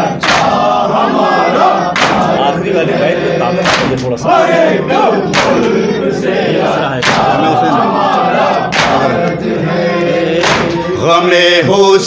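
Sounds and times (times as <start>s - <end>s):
group chanting: 0.0s - 12.0s
men slapping their chests: 0.2s - 0.7s, 1.9s - 2.4s, 3.6s - 4.2s, 5.3s - 5.7s, 7.0s - 9.4s, 10.4s - 10.9s.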